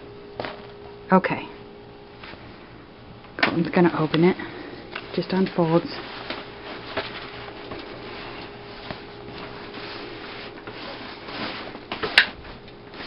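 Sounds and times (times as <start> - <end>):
faint steady hum: 0.0 - 13.0
stroller frame rustling and creaking: 5.0 - 13.0.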